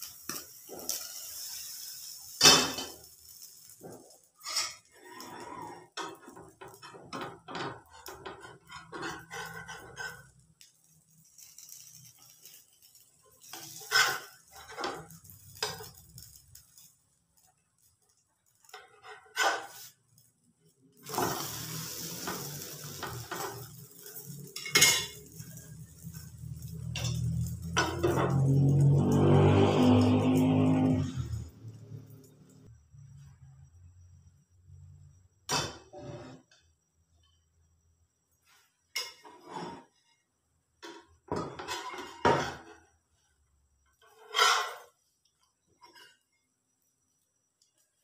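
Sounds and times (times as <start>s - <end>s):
sizzling in pan: 0.0s - 32.7s
frying pan and lid clinking: 2.4s - 3.1s, 24.5s - 25.6s.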